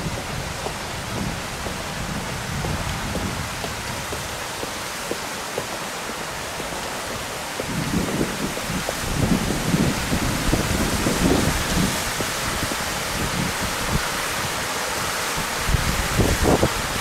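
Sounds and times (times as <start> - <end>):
heavy rain on paving and water: 0.0 - 17.0
water pouring into canal: 0.0 - 17.0.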